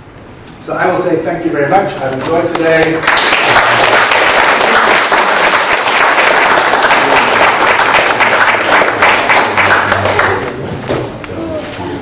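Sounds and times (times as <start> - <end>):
audience applause: 3.0 - 10.6.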